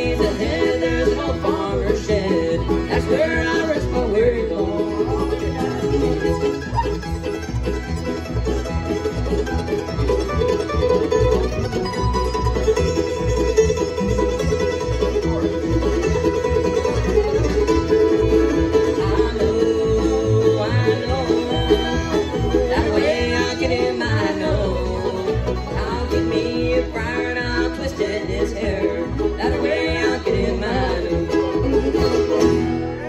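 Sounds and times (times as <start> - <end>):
person singing: 0.0 - 6.5, 17.9 - 32.3
bluegrass band playing: 0.0 - 33.0.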